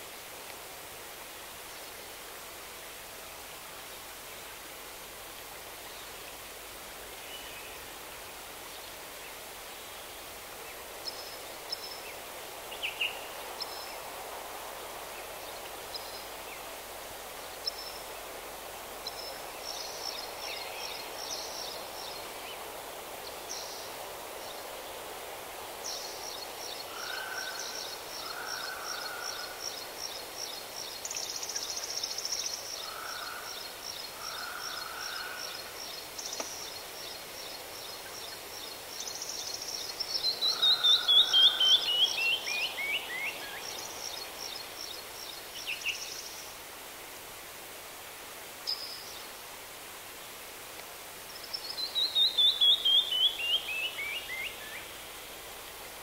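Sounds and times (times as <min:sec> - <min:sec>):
steady background hiss: 0:00.0 - 0:56.0
songbirds singing: 0:25.9 - 0:46.5, 0:51.3 - 0:55.0.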